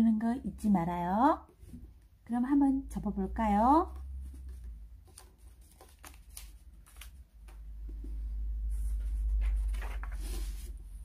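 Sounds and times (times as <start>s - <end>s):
paper rustling: 4.2s - 7.6s, 8.6s - 11.0s.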